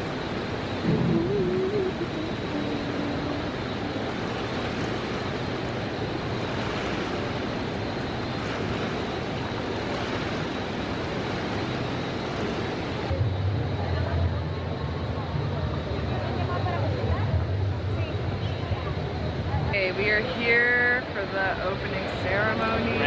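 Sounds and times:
low hum: 0.0 - 23.0
moving water: 0.0 - 23.0
air handling rushing: 0.8 - 2.3.

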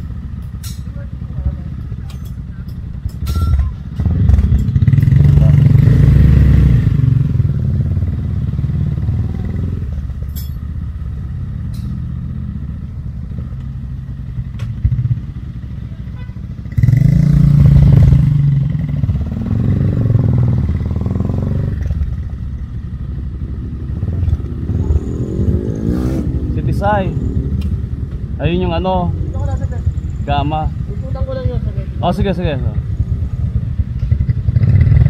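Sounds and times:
motorcycle engine idling and revving: 0.0 - 35.0.

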